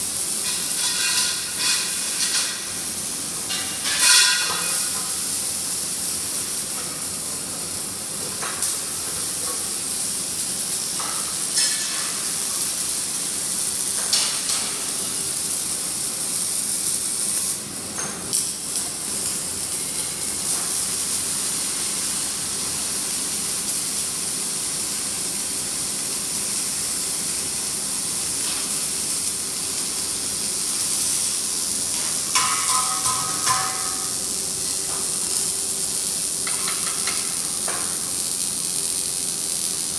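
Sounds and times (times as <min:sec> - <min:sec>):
arc welding hissing and crackling: 0:00.0 - 0:39.9
metallic knocks: 0:32.4 - 0:34.1
ringing metal clanks: 0:32.4 - 0:34.2.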